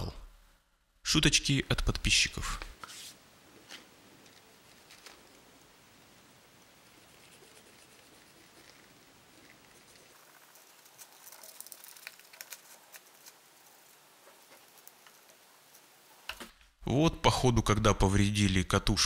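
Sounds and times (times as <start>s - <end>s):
cotton swab scratching plastic: 6.9s - 15.3s.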